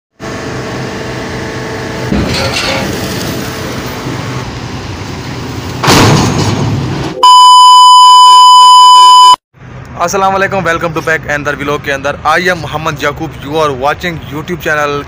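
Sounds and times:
loud electronic beep tone: 7.2 - 9.4.

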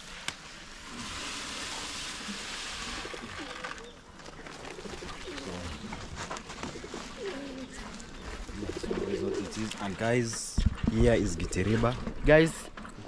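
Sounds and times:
steady hiss: 0.0 - 3.7
doves cooing: 1.0 - 10.2.

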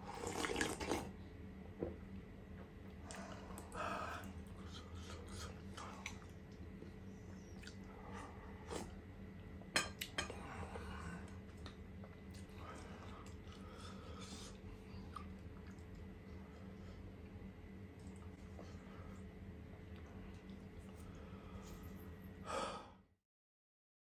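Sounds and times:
slurping soup: 0.0 - 1.2
chewing: 2.9 - 9.0, 11.2 - 16.4.

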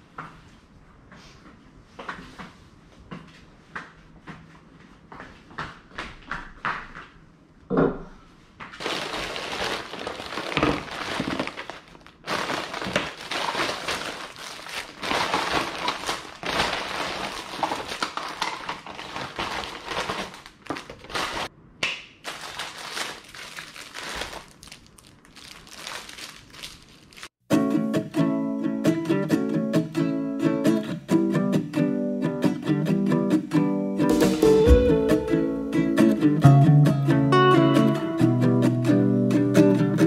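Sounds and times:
packaging crinkling: 8.8 - 21.5, 22.2 - 27.4.

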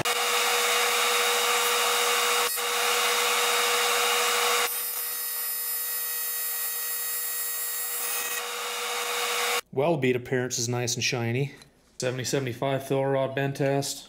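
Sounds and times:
welding arc buzzing and hissing: 0.0 - 5.1.

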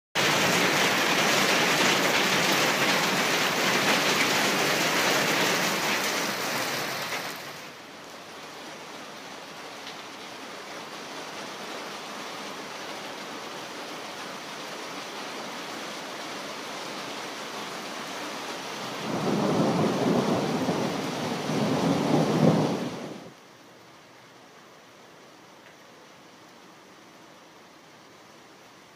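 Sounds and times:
heavy rain on tiles: 0.2 - 28.9
thunder rumble: 19.0 - 23.3.

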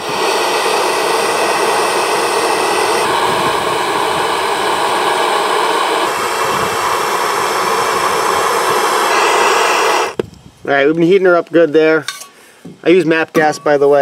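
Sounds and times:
gas torch hissing: 0.0 - 10.8.

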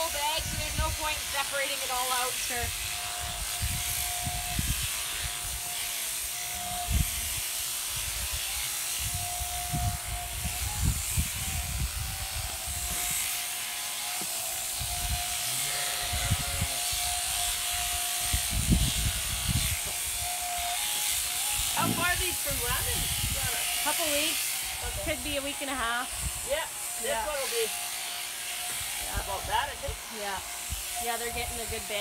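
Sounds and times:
electric sheep shears humming: 0.0 - 32.0
low thumps: 21.8 - 22.6.

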